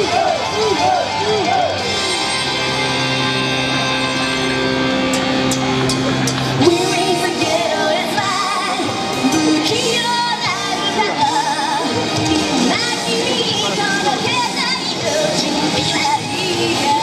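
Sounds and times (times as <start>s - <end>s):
pop backing music: 0.0s - 17.0s
woman singing with vibrato: 6.5s - 17.0s.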